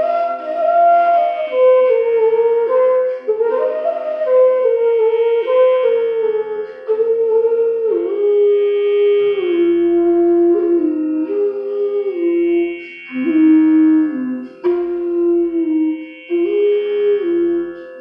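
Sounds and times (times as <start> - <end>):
slow sliding melody: 0.0 - 18.0
steady musical drone: 11.3 - 18.0.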